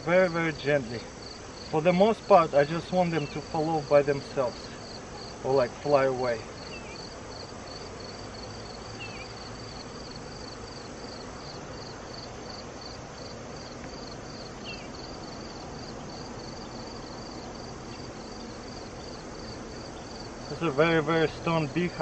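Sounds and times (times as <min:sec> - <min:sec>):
background hiss: 0:00.0 - 0:22.0
cricket chirping: 0:00.0 - 0:22.0.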